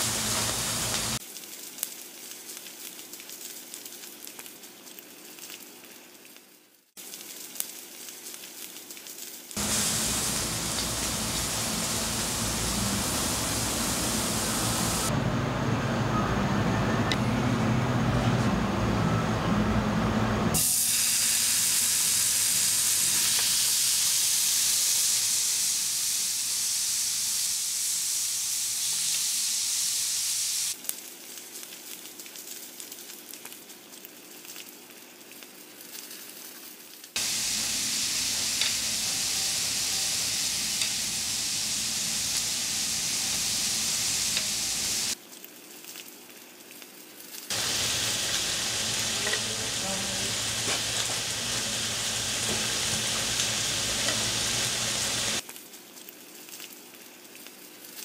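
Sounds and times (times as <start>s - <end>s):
meat sizzling on griddle: 0.0s - 6.3s, 7.0s - 15.1s, 20.6s - 45.2s, 47.0s - 55.5s.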